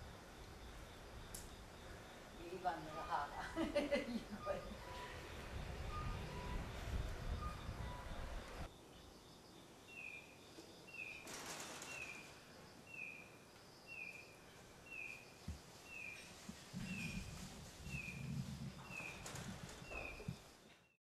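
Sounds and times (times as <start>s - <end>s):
small bird chirping: 11.9s - 21.0s.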